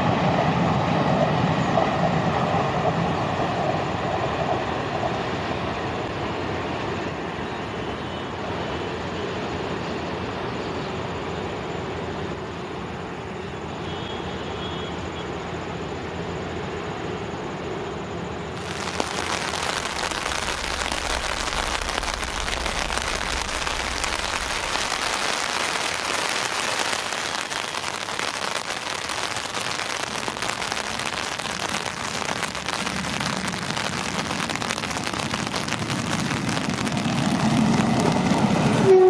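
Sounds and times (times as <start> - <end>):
low rumble: 18.6 - 26.0
heavy rain on grass: 18.6 - 39.0.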